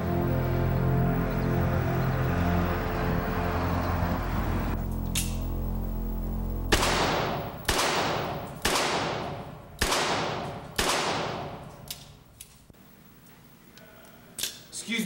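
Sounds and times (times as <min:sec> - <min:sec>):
echoing handgun shots: 0:06.7 - 0:12.1.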